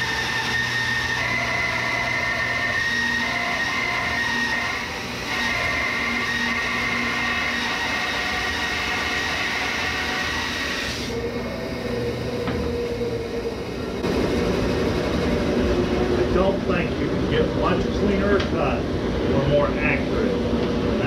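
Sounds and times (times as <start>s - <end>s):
bandsaw cutting wood: 0.0s - 11.2s
dust collector running: 0.0s - 21.0s.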